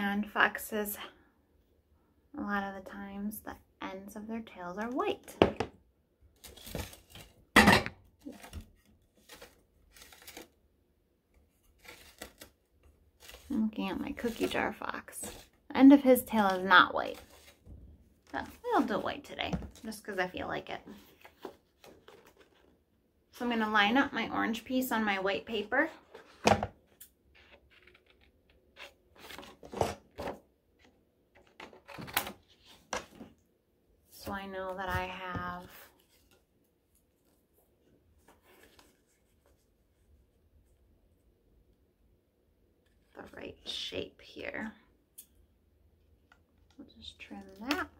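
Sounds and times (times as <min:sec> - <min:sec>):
paper rustling: 0:08.2 - 0:10.6, 0:11.4 - 0:12.6, 0:13.2 - 0:15.5, 0:16.5 - 0:17.7.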